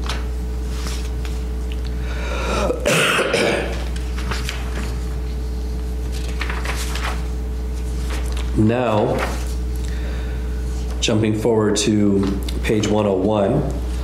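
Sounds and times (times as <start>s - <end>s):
paper pages rustling: 0.0s - 1.6s, 3.7s - 9.8s
steady low hum: 0.0s - 14.0s
person coughing: 2.3s - 3.9s.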